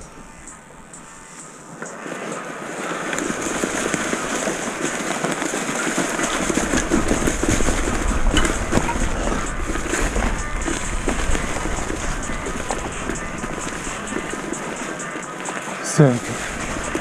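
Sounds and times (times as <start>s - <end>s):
wind rumble on microphone: 3.2s - 14.9s, 16.2s - 17.0s.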